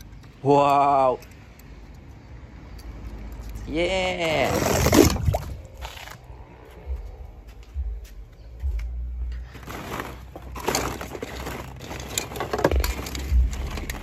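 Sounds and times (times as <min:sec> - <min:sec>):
low thumps: 0:04.8 - 0:09.4
small objects rustling and clattering: 0:09.3 - 0:14.0.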